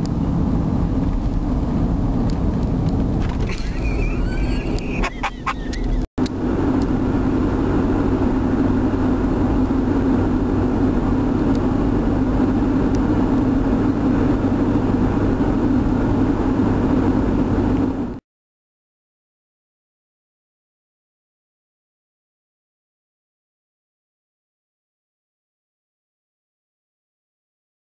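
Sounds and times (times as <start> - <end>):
car engine and road drone: 0.0 - 18.2.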